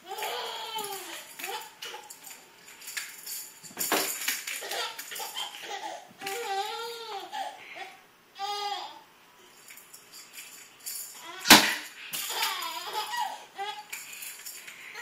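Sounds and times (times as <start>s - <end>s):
sharp slap: 11.5s - 11.9s.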